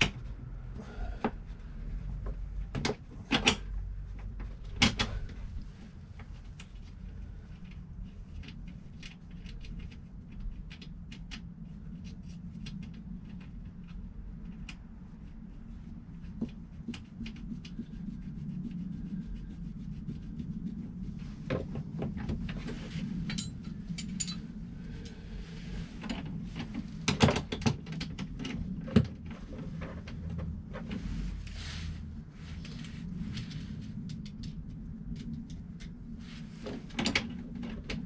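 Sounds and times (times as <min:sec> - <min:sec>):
steady low hum: 0:00.0 - 0:38.0
metal parts clicking and scraping: 0:23.2 - 0:24.5.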